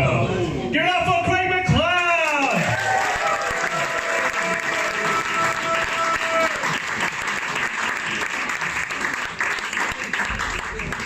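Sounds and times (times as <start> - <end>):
audience applauding: 2.2 - 11.0.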